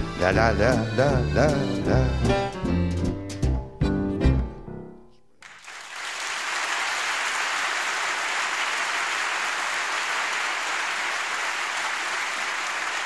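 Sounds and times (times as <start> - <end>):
audience applauding: 5.4 - 13.0.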